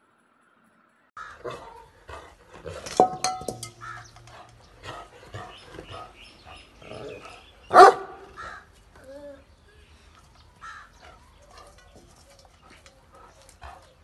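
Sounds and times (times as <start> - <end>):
metal dog bowl clanking: 2.6 - 4.7.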